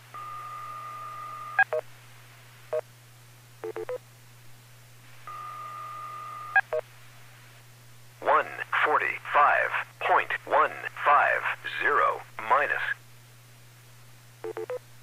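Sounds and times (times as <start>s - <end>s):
long steady beep: 5.3s - 6.6s.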